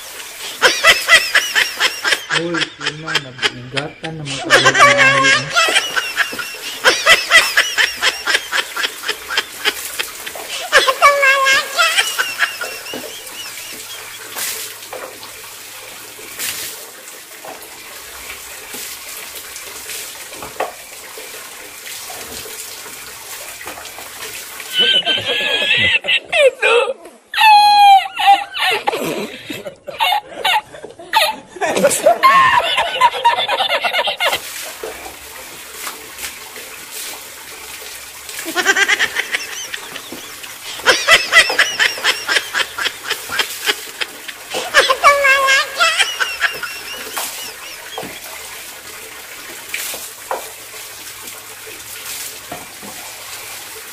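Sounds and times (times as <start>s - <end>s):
water poured and splashing: 0.0s - 26.0s, 31.8s - 53.9s
tap water running into bucket: 0.0s - 26.4s, 32.0s - 53.9s
man's high wheezing laugh: 0.5s - 13.6s, 24.7s - 33.5s.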